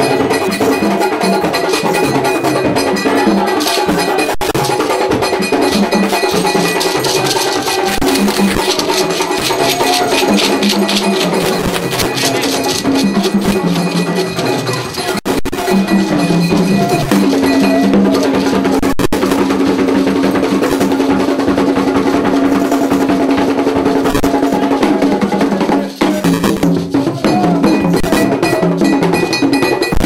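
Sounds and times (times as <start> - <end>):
struck metal bell: 0.0 - 19.6, 26.2 - 30.0
drums: 0.0 - 30.0
group singing: 2.4 - 18.7, 24.3 - 26.4.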